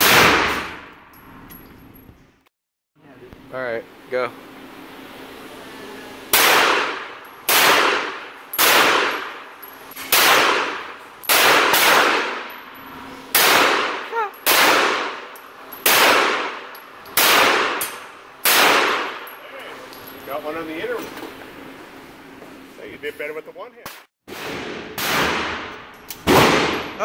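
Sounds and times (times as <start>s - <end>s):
pistol shots echoing indoors: 0.0s - 1.0s, 6.3s - 9.5s, 10.1s - 12.6s, 13.3s - 19.3s, 24.3s - 27.0s.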